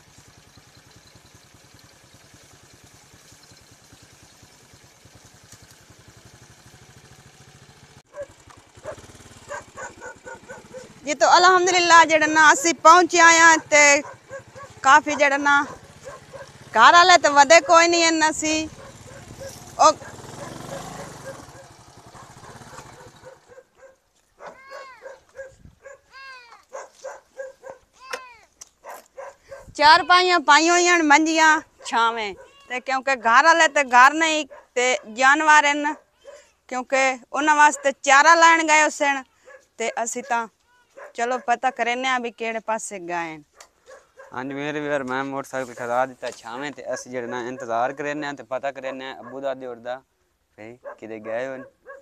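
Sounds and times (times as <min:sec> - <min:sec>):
small motorcycle engine chugging: 0:00.0 - 0:26.0, 0:43.9 - 0:49.5
dog barking: 0:08.1 - 0:11.0, 0:13.4 - 0:16.6, 0:17.4 - 0:18.0, 0:18.6 - 0:27.9, 0:28.8 - 0:29.8, 0:31.8 - 0:32.7, 0:34.4 - 0:35.2, 0:35.8 - 0:36.6, 0:37.6 - 0:38.0, 0:39.3 - 0:42.0, 0:43.5 - 0:44.5, 0:46.8 - 0:48.2, 0:48.8 - 0:49.6, 0:50.8 - 0:52.0.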